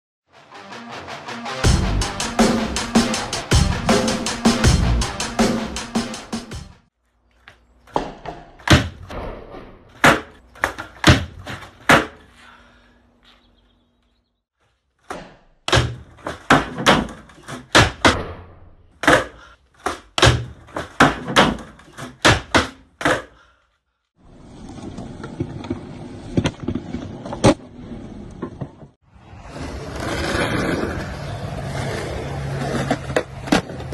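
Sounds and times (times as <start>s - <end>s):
skateboard clacks: 19.0s - 23.3s, 31.7s - 33.9s
skateboard rolling on concrete: 24.2s - 33.9s.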